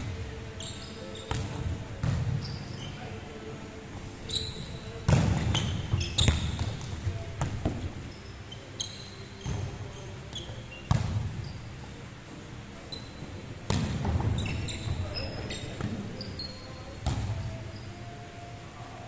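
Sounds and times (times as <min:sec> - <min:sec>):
sneakers squeaking on wooden court: 0:00.5 - 0:03.2, 0:04.3 - 0:11.9, 0:12.9 - 0:18.0.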